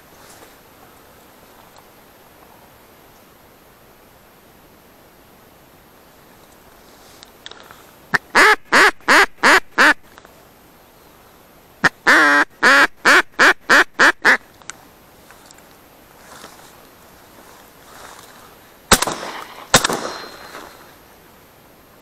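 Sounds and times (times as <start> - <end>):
duck quacking: 8.1 - 10.0, 11.8 - 14.5.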